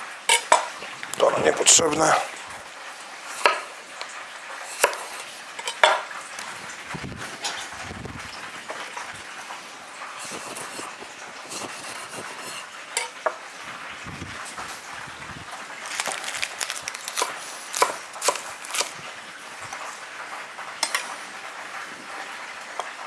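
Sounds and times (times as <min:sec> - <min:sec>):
fish frying in hot fat: 0:00.0 - 0:23.0
knife slicing a tomato: 0:04.7 - 0:05.2, 0:15.9 - 0:19.0.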